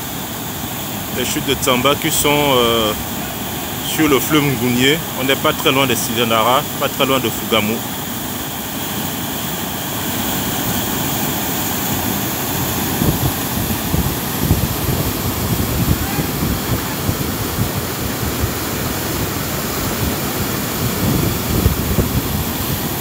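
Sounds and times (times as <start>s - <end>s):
river rapids roaring: 0.0s - 23.0s
low gusty surges: 12.0s - 22.9s.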